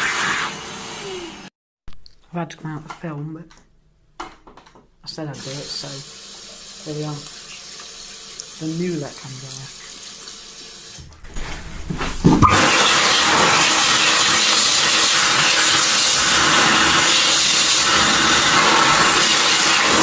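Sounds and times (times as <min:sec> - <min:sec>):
electric hand dryer blowing: 0:00.0 - 0:01.5, 0:12.4 - 0:20.0.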